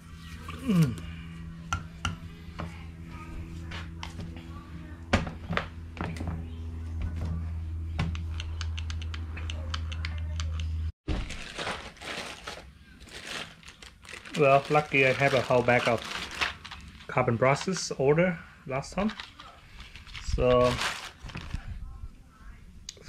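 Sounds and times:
steady low hum: 0:00.0 - 0:10.9
plastic bag rustling: 0:11.1 - 0:18.0, 0:18.8 - 0:21.9.

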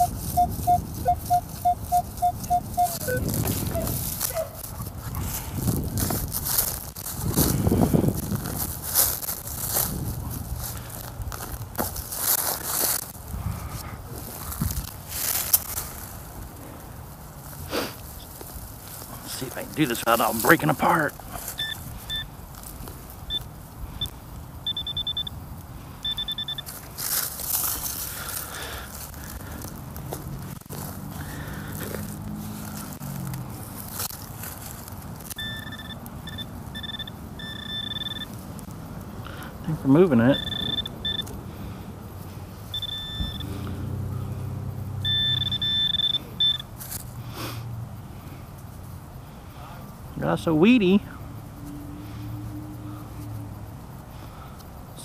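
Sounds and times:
metal detector beeping: 0:00.0 - 0:04.5, 0:20.4 - 0:22.3, 0:23.3 - 0:25.4, 0:26.0 - 0:26.8, 0:35.4 - 0:38.4, 0:40.0 - 0:41.3, 0:42.7 - 0:43.6, 0:45.0 - 0:46.7
rustling scrape of soil and grass: 0:00.0 - 0:24.1, 0:26.5 - 0:36.0, 0:46.7 - 0:50.0.

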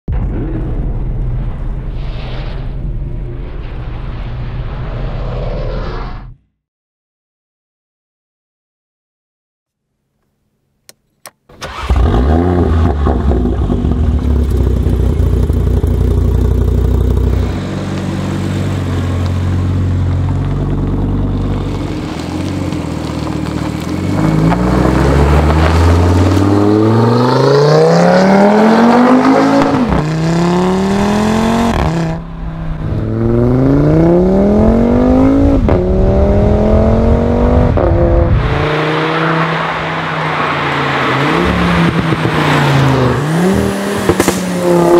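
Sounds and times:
car engine starting and idling: 0:10.9 - 0:30.1
car accelerating through gears: 0:23.4 - 0:32.2, 0:32.8 - 0:44.9.

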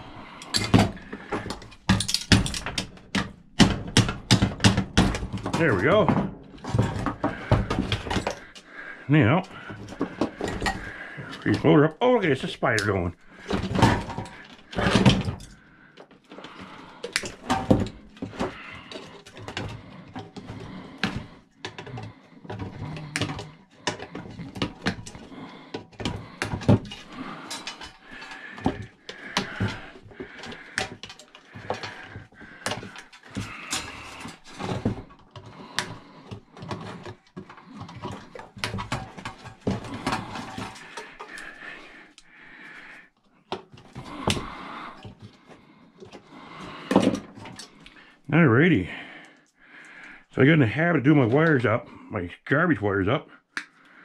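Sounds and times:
metal parts clicking and clattering: 0:00.4 - 0:08.6, 0:21.0 - 0:35.9.

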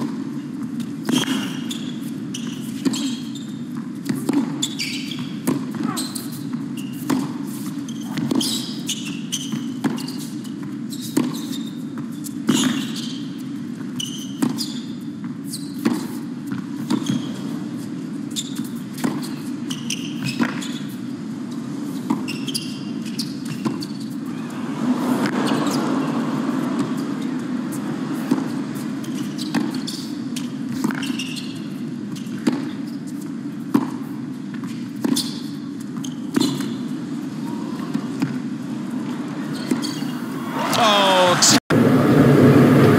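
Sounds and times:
arena crowd hum: 0:24.2 - 0:29.0, 0:37.0 - 0:42.9.

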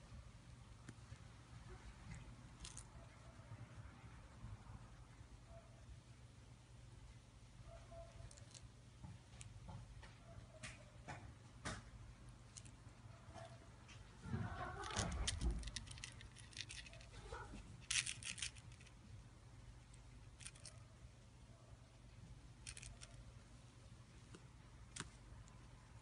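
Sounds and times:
faint low hum: 0:00.0 - 0:26.0
kitten playing with crinkly toy: 0:14.5 - 0:19.0, 0:20.3 - 0:20.8, 0:22.6 - 0:23.2.

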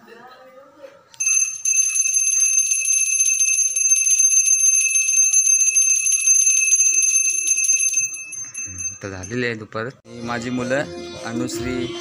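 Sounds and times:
hand bell ringing rapidly: 0:01.2 - 0:09.4.

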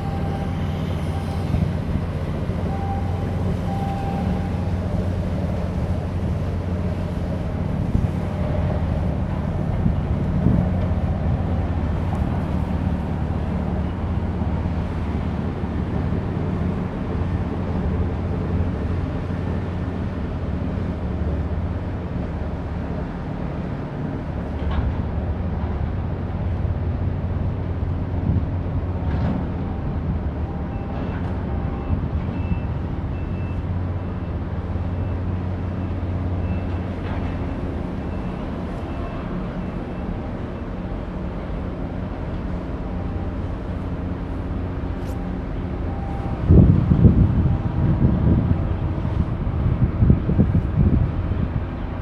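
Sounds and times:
ship engine low drone: 0:00.0 - 0:52.0.

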